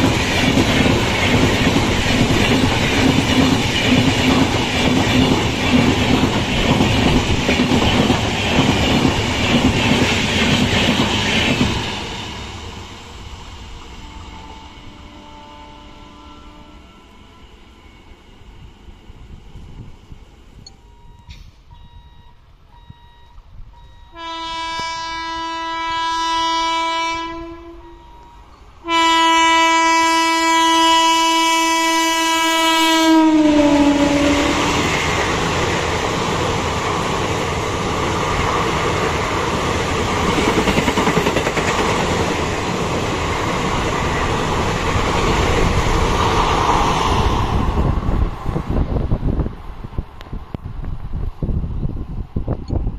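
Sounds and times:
train coaches rolling on rails: 0.0s - 52.9s
locomotive horn blasts: 14.0s - 17.6s, 23.9s - 34.7s.

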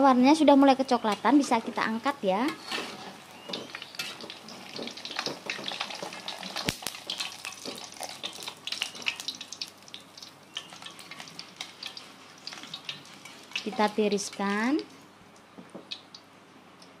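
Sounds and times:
food sizzling in hot oil: 0.4s - 15.0s
metal utensils scraping wok: 1.0s - 9.3s, 10.6s - 14.5s.

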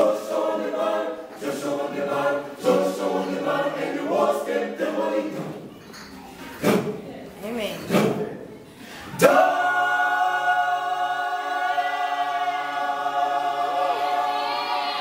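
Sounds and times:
mixed choir singing a cappella: 0.0s - 5.8s, 8.8s - 15.0s.

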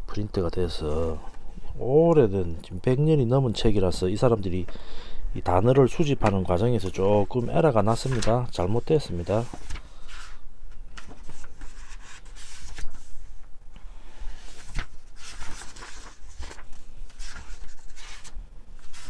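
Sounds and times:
paper pages turning: 6.2s - 13.5s, 14.3s - 19.0s.

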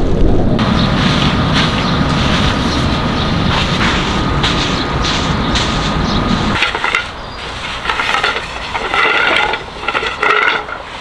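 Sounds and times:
low rumble: 0.0s - 8.2s
objects knocking and clattering: 7.8s - 10.8s.

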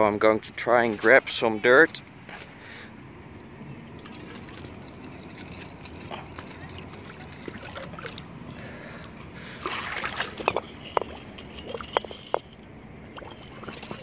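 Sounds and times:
pond water sloshing: 0.6s - 14.0s
water splashing: 3.8s - 8.8s, 9.4s - 12.4s, 13.1s - 14.0s
bubbling plops: 13.1s - 14.0s.

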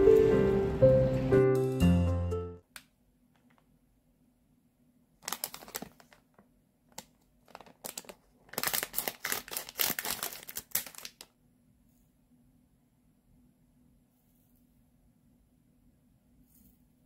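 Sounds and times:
plastic packaging crinkling: 5.2s - 11.3s.

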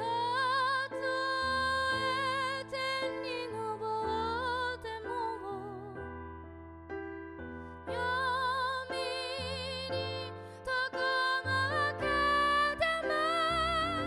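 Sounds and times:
woman singing with vibrato: 7.9s - 14.0s.

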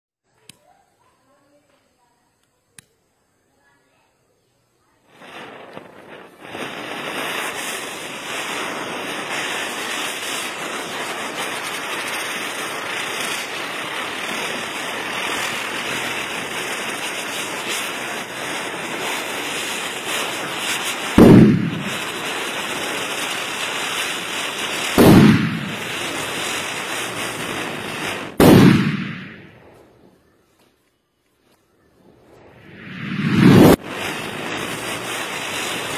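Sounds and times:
firework hissing: 4.1s - 30.2s, 32.0s - 35.9s
firecracker bangs: 5.1s - 29.6s, 32.7s - 35.9s.

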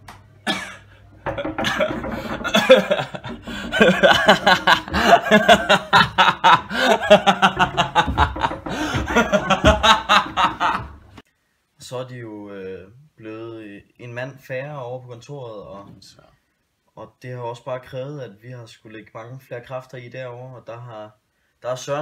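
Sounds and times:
person laughing loudly: 1.3s - 11.0s.

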